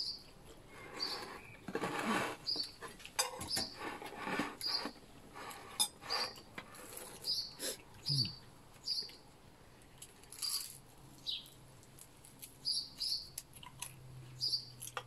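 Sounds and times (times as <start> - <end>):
bird chirping: 0.0 - 0.3, 0.9 - 1.6, 2.4 - 2.8, 4.6 - 5.0, 7.2 - 9.2, 11.2 - 11.6, 12.6 - 13.4, 14.3 - 14.8
chewing and crunching food: 8.7 - 15.0.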